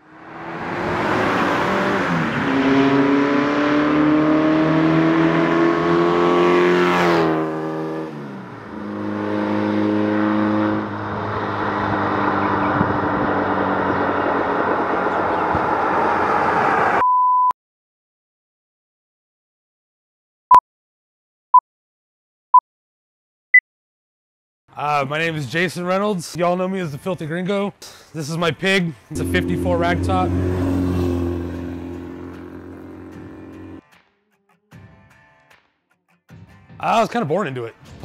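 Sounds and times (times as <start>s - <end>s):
car engine accelerating: 0.1s - 17.0s, 29.1s - 33.8s
steady beep tone: 29.1s - 33.7s.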